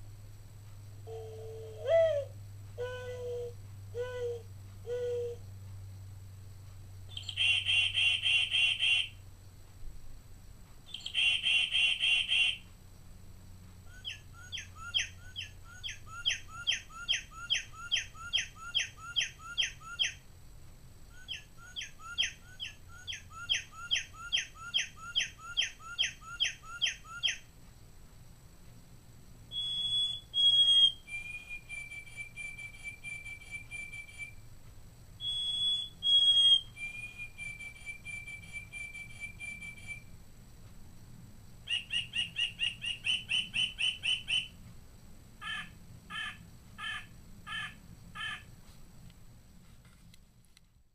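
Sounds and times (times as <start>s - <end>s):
clock playing recorded bird songs: 6.6s - 9.3s, 10.8s - 12.8s, 13.7s - 20.3s, 21.0s - 27.7s, 29.5s - 34.5s, 35.2s - 40.2s, 41.6s - 44.7s, 45.4s - 48.5s.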